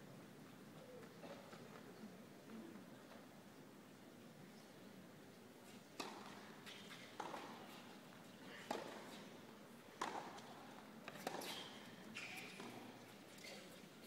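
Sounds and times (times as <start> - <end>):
tennis rackets hitting ball: 6.0 - 7.6, 8.7 - 9.1, 10.0 - 11.5.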